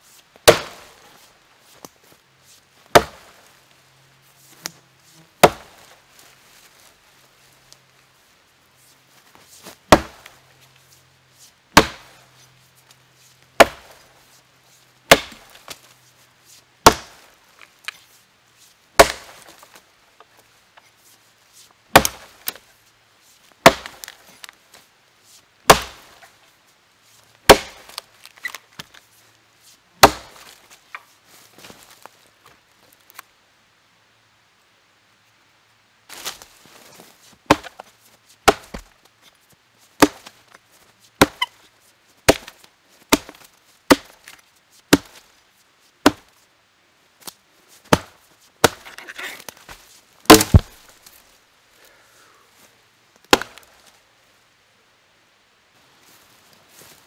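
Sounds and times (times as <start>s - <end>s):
axe chopping log: 0.4s - 1.0s, 2.9s - 3.3s, 5.4s - 5.9s, 9.9s - 10.3s, 11.8s - 12.2s, 13.6s - 13.9s, 15.1s - 15.7s, 16.8s - 17.2s, 19.0s - 19.6s, 21.9s - 22.6s, 23.6s - 24.2s, 25.7s - 26.2s, 27.5s - 28.0s, 30.0s - 30.5s, 37.5s - 38.9s, 40.0s - 40.3s, 41.2s - 41.5s, 42.3s - 44.2s, 44.9s - 45.2s, 46.0s - 46.3s, 47.9s - 49.7s, 50.3s - 50.8s, 53.3s - 53.6s.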